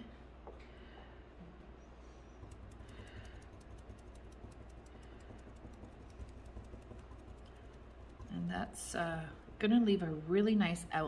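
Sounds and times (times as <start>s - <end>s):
sponge tapping on stencil: 2.4s - 8.8s.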